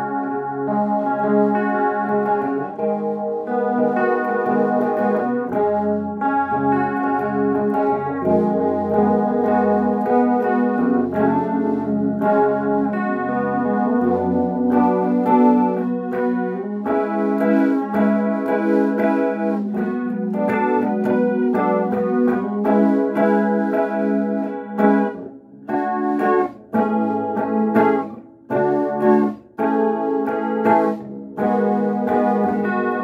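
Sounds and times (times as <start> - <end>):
electric guitar chords: 0.0 - 33.0.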